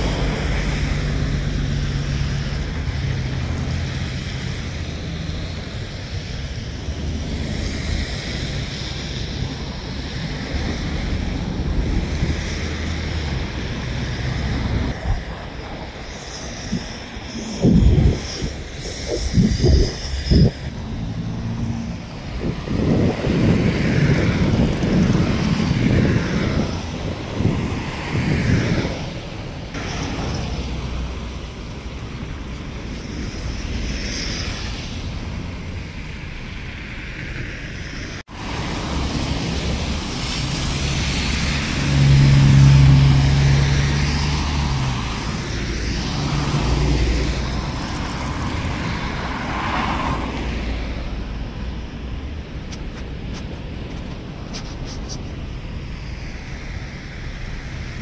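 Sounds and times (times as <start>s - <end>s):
road traffic: 0.0s - 58.0s
wind rumbling on microphone: 0.0s - 58.0s
vehicle engine passing by: 38.4s - 51.2s.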